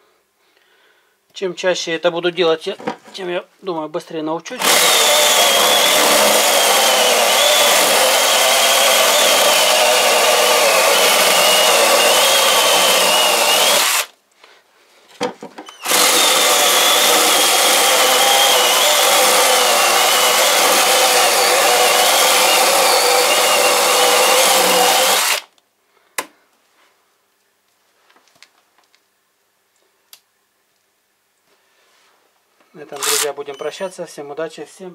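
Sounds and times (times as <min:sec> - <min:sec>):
mini chainsaw cutting branch: 0:04.6 - 0:14.1, 0:15.7 - 0:25.5.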